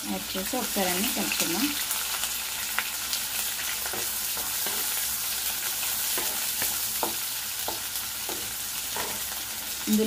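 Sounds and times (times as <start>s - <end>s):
onions sizzling in hot oil: 0.0s - 10.0s
spatula scraping and tapping pan: 3.8s - 9.4s.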